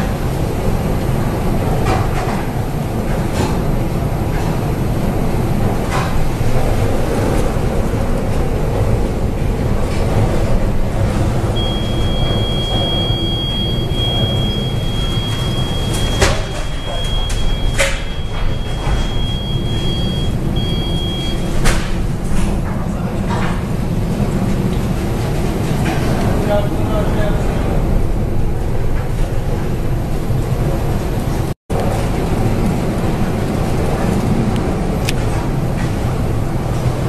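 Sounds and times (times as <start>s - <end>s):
storm wind and heavy sea: 0.0s - 37.0s
high-pitched steady tone: 11.6s - 21.5s.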